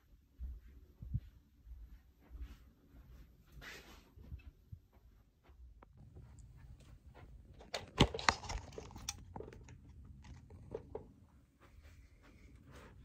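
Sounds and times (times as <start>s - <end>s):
phone handling rustling and clicks: 7.5s - 11.1s.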